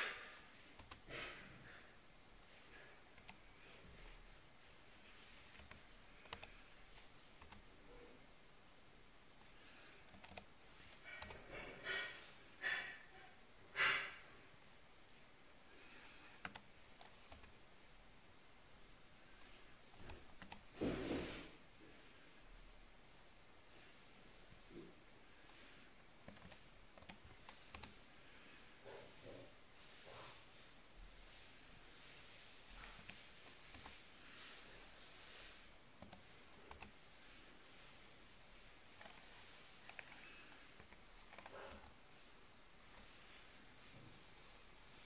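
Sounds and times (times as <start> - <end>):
keyboard keys clicking: 0.7 - 1.1, 10.0 - 11.4, 16.4 - 17.6, 26.2 - 27.9, 36.0 - 36.9
short breaths: 11.0 - 14.4.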